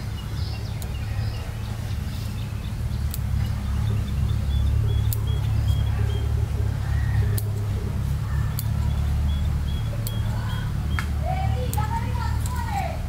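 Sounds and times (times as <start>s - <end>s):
steady low rumble: 0.0s - 13.0s
scissors snipping: 3.1s - 3.3s, 7.3s - 7.6s, 8.5s - 8.9s.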